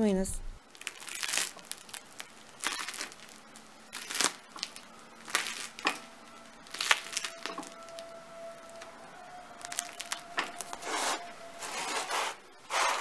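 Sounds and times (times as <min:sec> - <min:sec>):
bread crust crackling: 0:00.6 - 0:13.0.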